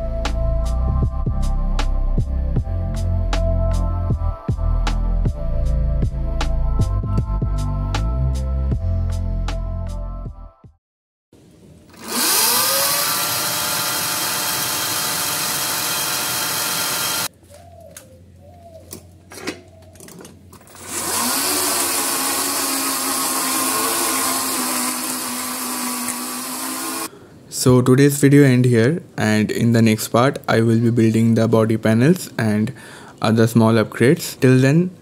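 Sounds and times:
electric motor whine: 11.9 - 17.3, 20.6 - 27.1.

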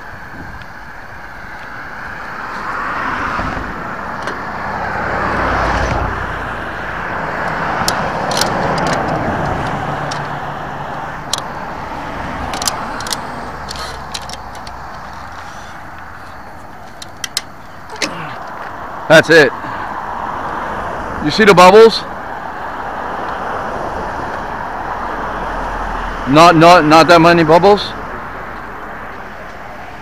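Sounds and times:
cars driving past: 0.0 - 30.0
sharp clicks: 7.4 - 11.6, 12.2 - 18.8.

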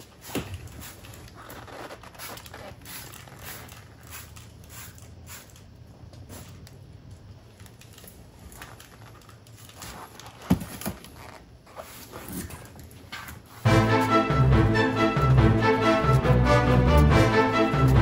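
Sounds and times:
spray bottle squirting: 0.0 - 6.7.

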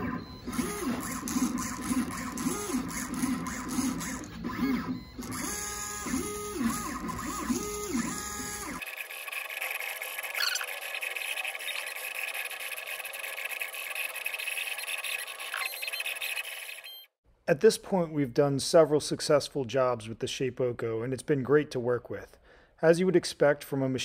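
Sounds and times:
stepper motors whining: 0.0 - 17.2.

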